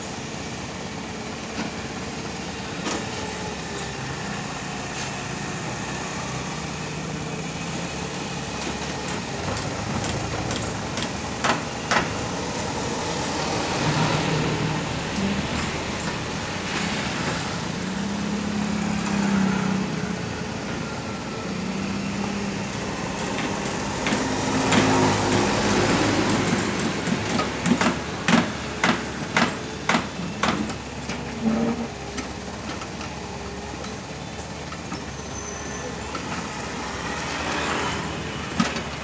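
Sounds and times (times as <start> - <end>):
excavator diesel engine digging: 0.1 - 39.0.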